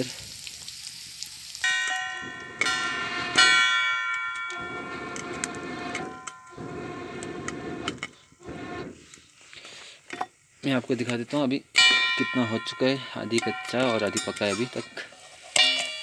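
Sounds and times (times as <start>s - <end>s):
kernels sizzling in oil: 0.0s - 16.0s
metal plate clanking on wok: 11.8s - 16.0s.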